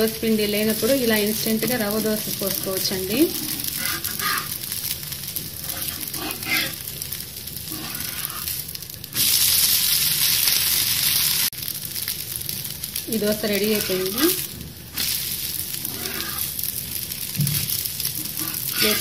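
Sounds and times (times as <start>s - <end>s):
dosa sizzling in oil: 0.0s - 19.0s
spatula scraping pan: 3.3s - 4.6s, 5.6s - 6.8s, 7.7s - 8.6s, 13.6s - 14.4s, 15.8s - 16.5s, 18.2s - 19.0s.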